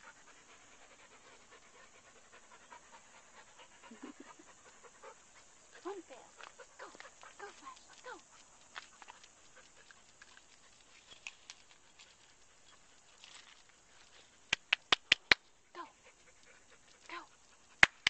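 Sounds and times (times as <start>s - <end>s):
dog claws clicking on concrete: 14.5s - 15.4s, 17.8s - 18.0s.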